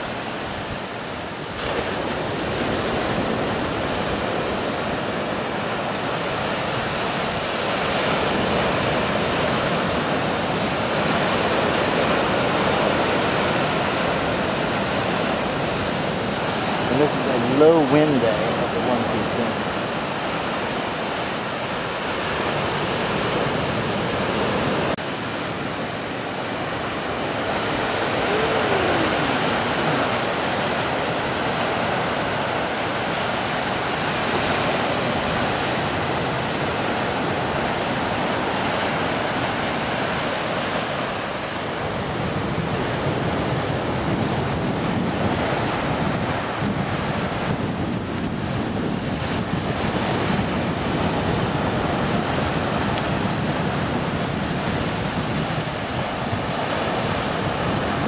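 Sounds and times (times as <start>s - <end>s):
waves breaking over rocks: 0.0s - 58.0s.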